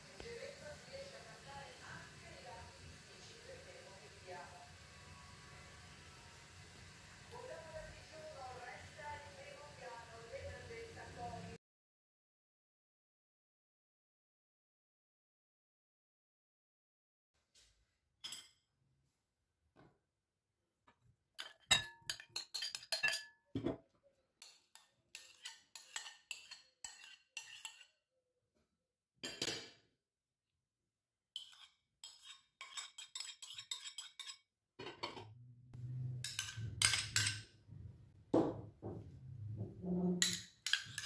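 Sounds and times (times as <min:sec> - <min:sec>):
metal spoon clinking on bowls: 0:21.4 - 0:23.8, 0:24.4 - 0:27.9, 0:29.2 - 0:29.6, 0:31.4 - 0:35.2, 0:36.2 - 0:37.5, 0:40.2 - 0:41.0
low hum: 0:35.3 - 0:36.8.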